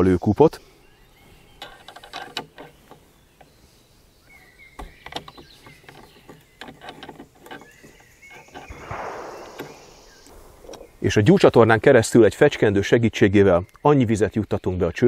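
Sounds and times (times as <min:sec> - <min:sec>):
soft rustle: 0:00.6 - 0:11.1
faint metallic clicks and scrapes: 0:01.4 - 0:03.8, 0:04.7 - 0:10.9.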